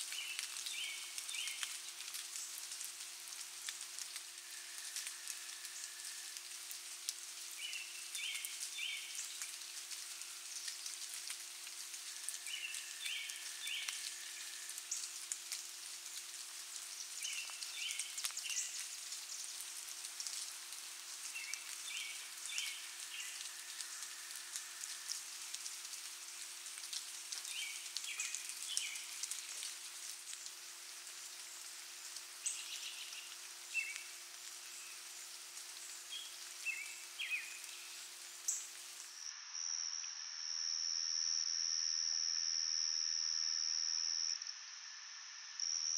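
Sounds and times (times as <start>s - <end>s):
insect chorus shrill hiss: 0.0s - 45.9s
short insect call: 12.0s - 15.8s, 21.1s - 25.8s, 35.9s - 45.9s.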